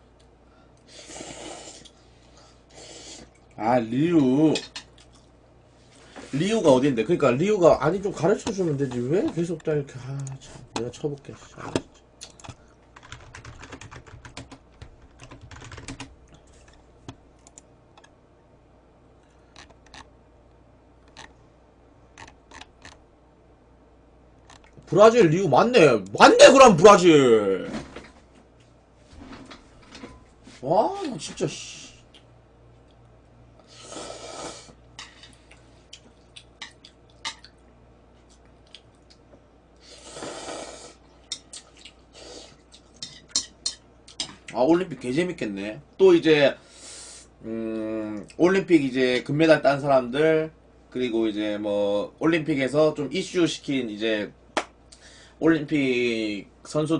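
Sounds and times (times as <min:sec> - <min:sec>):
quiet chewing: 0:04.8 - 0:05.4, 0:35.3 - 0:39.8, 0:41.1 - 0:44.3
typing on computer keyboard: 0:12.3 - 0:16.1.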